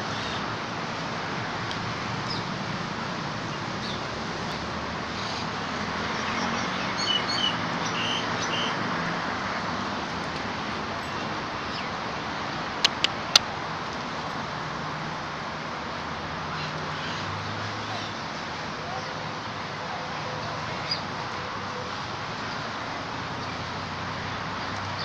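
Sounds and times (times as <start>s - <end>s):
road traffic hum: 0.0s - 25.0s
sharp clicks: 12.8s - 13.4s.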